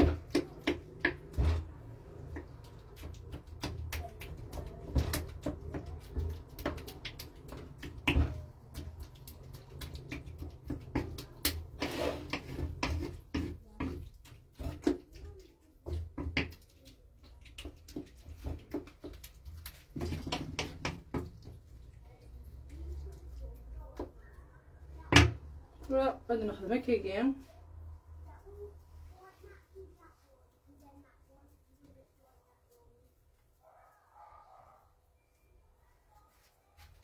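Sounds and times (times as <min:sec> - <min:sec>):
spoon scraping clay bowl: 0:04.6 - 0:15.1.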